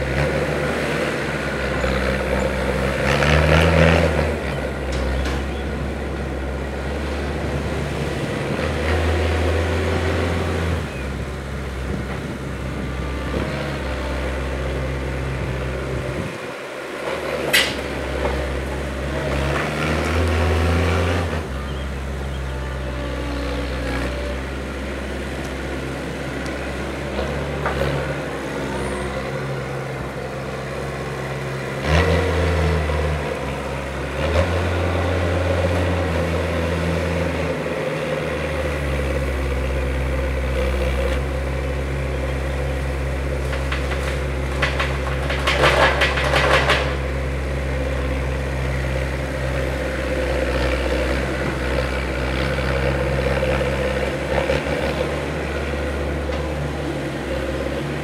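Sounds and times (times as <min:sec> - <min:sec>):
loader engine revving: 0:00.0 - 0:58.0.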